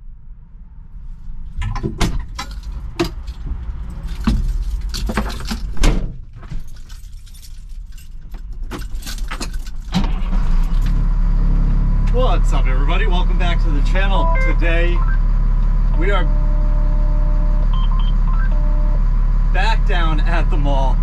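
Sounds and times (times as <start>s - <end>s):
low engine rumble: 0.0s - 21.0s
sharp clicks and knocks: 1.6s - 6.6s
keys jangling: 2.4s - 5.8s, 6.4s - 9.9s.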